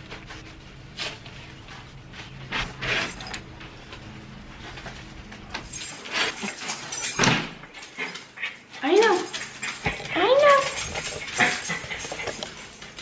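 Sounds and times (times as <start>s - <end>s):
sliding glass door: 2.5s - 3.8s.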